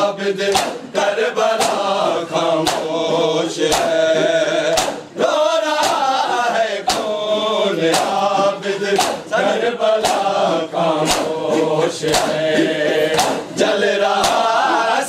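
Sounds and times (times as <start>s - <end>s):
men chanting together: 0.0s - 15.0s
hands slapping bare chests: 0.5s - 0.8s, 1.6s - 2.0s, 2.6s - 3.0s, 3.7s - 4.0s, 4.7s - 5.1s, 5.8s - 6.1s, 6.8s - 7.2s, 7.8s - 9.4s, 10.0s - 13.5s, 14.1s - 14.6s.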